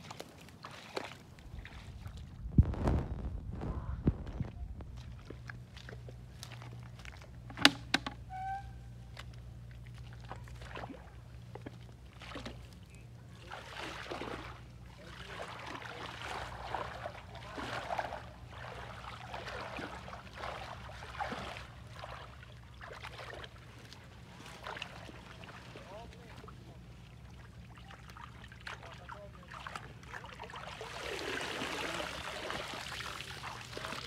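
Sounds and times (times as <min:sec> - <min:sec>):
muddy water splashing: 0:00.0 - 0:02.6, 0:03.8 - 0:34.0
steady low hum: 0:01.2 - 0:31.0.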